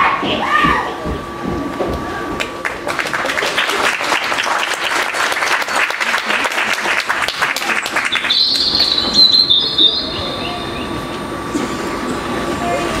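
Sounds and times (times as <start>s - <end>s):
audience applauding: 2.4s - 9.9s
casters squealing: 7.8s - 11.4s.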